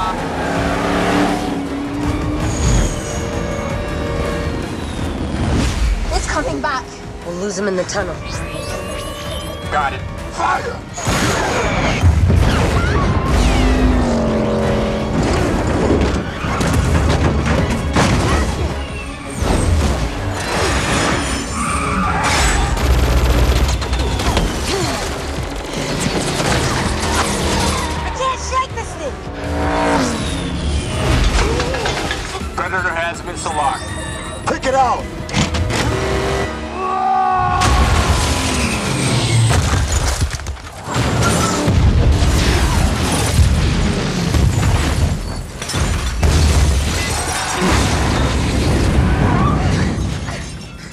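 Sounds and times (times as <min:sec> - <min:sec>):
car engine: 0:00.0 - 0:05.4
film score music: 0:00.0 - 0:50.9
rapid gunfire: 0:22.6 - 0:27.4.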